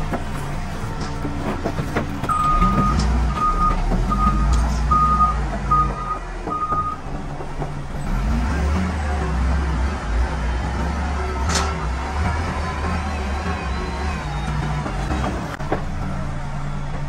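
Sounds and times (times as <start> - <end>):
machine engine running low: 0.0 - 17.0
reversing alarm beeping: 2.3 - 7.0.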